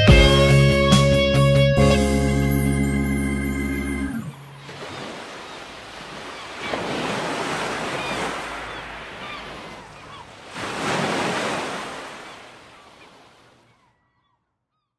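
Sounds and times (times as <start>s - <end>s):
surf washing over pebbles: 4.6s - 13.6s.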